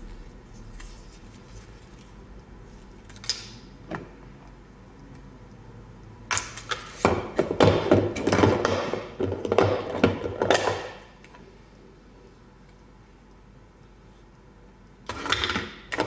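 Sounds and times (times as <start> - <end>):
plastic containers knocking and rattling: 7.0 - 11.0.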